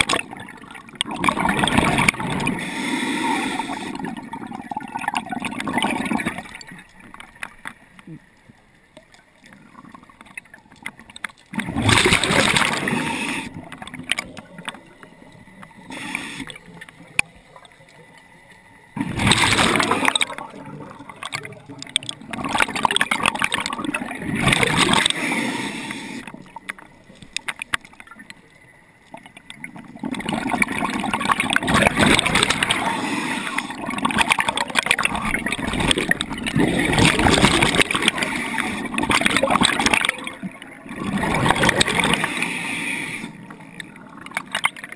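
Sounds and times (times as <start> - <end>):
underwater breath bubbles: 0.0 - 8.3, 9.5 - 18.0, 18.9 - 28.3, 29.6 - 44.9
underwater hiss: 1.4 - 4.4, 12.0 - 15.0, 15.6 - 18.1, 19.0 - 21.8, 22.8 - 26.8, 31.2 - 35.1, 35.8 - 39.1, 41.0 - 43.8.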